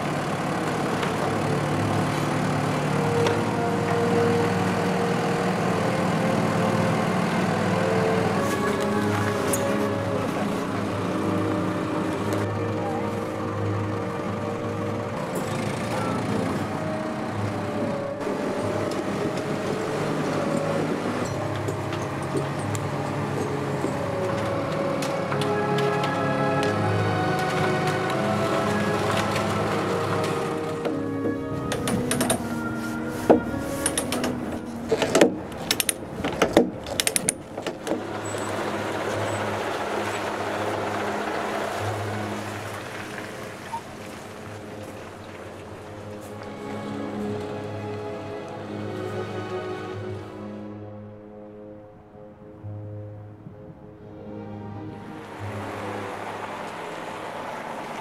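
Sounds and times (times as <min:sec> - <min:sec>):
diesel engine running: 0:00.0 - 0:49.6.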